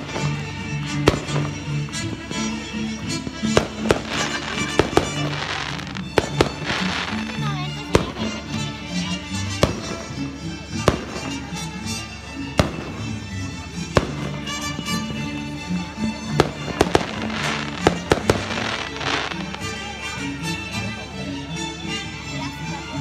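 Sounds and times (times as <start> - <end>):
fireworks bangs: 0.0 - 8.4, 9.5 - 10.1, 10.8 - 11.5, 12.6 - 13.1, 13.9 - 15.2, 16.3 - 19.7
fireworks crackling: 0.0 - 20.1
music: 0.0 - 23.0.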